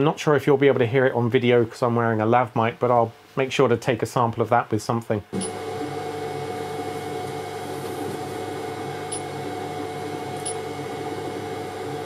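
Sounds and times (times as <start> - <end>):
cooling fans humming: 5.3 - 12.0.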